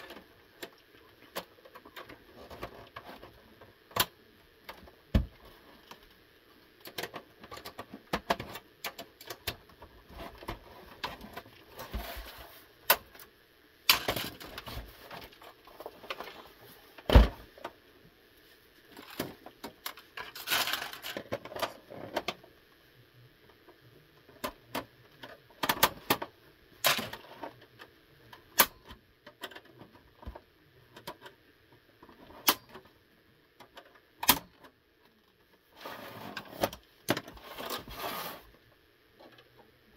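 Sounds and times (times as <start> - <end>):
plastic and metal clicks and scraping: 0.0 - 6.2, 6.8 - 13.3, 13.9 - 17.8, 18.9 - 22.4, 24.2 - 32.9, 33.6 - 38.4.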